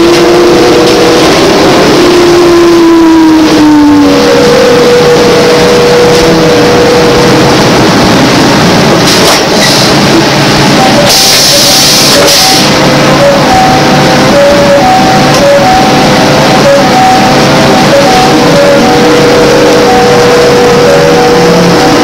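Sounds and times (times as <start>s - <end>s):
trolleybus running noise: 0.0s - 22.0s.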